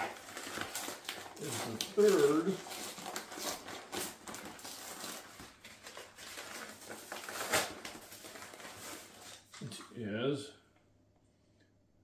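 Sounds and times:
paper bag tearing and crinkling: 0.0 - 9.5.

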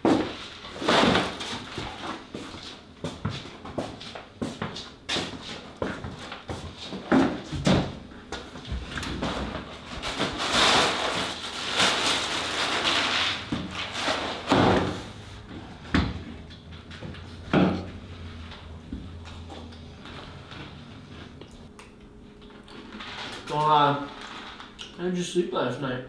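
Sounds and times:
plastic bag crinkling: 9.8 - 14.5, 22.6 - 24.9.

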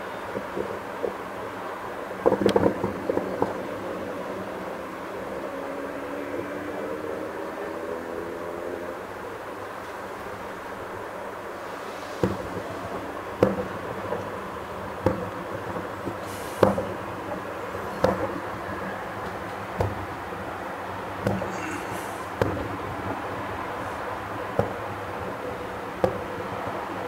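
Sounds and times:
steady background hiss: 0.0 - 27.0
distant firework bangs: 0.1 - 4.1, 11.6 - 27.0
brief high hiss: 11.6 - 12.3, 16.2 - 16.7.

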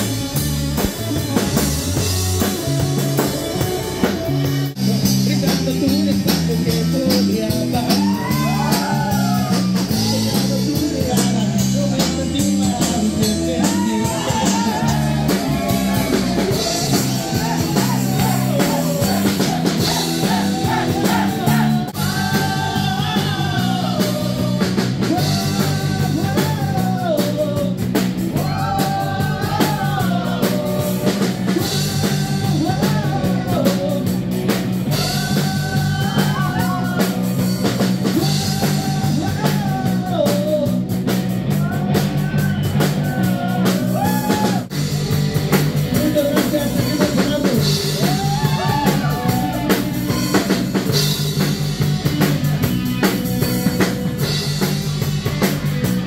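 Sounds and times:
bass guitar: 0.0 - 56.0
drums: 0.0 - 56.0
electric guitar: 0.0 - 56.0
person singing: 4.7 - 27.8, 28.4 - 34.2, 34.9 - 37.3, 38.0 - 40.8.

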